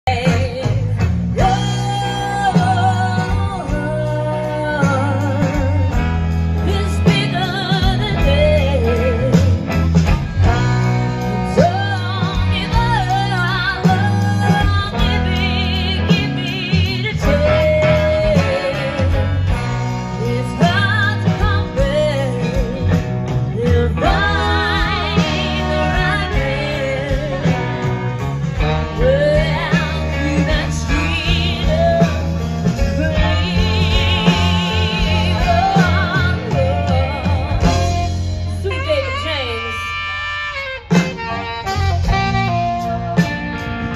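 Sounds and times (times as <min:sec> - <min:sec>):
drums: 0:00.0 - 0:43.9
electric guitar: 0:00.0 - 0:43.9
soul band playing: 0:00.0 - 0:43.9
heavy bass line: 0:00.1 - 0:39.5
person singing with vibrato: 0:11.2 - 0:40.0
person singing: 0:28.6 - 0:39.7.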